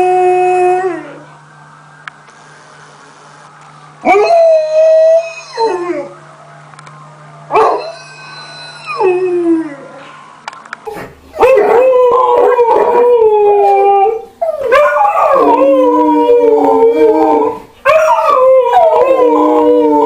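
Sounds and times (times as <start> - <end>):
dog howling with wavering pitch: 0.0 - 1.4, 4.0 - 6.2, 7.5 - 10.3, 11.4 - 20.0
dog howling: 4.0 - 6.1, 7.5 - 10.1, 11.4 - 20.0.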